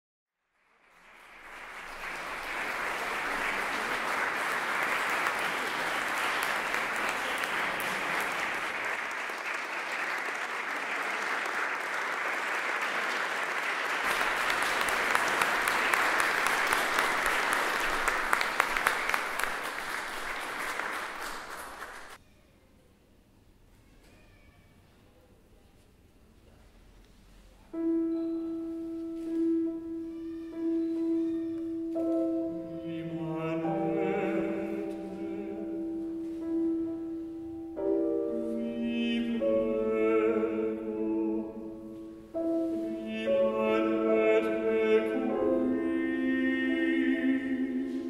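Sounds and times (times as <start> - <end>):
audience applauding: 0.5 - 22.2.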